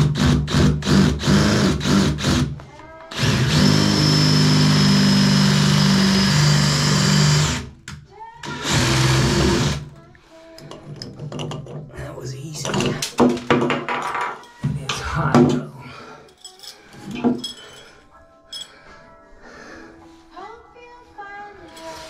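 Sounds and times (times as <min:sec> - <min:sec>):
power drill drilling: 0:00.0 - 0:07.7, 0:08.4 - 0:09.9.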